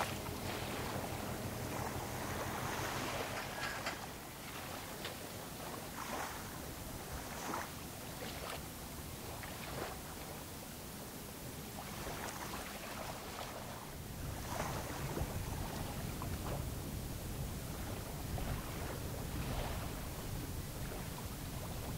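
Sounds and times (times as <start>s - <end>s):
small waves lapping: 0.0s - 21.9s
wind on microphone: 14.0s - 21.9s.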